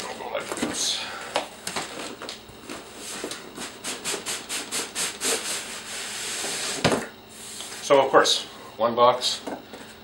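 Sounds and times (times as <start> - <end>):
cardboard scraping on cardboard: 2.7 - 7.0.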